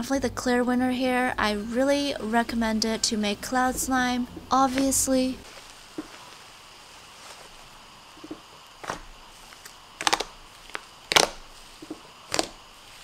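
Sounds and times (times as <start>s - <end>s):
slime crackling pops: 8.2s - 12.7s.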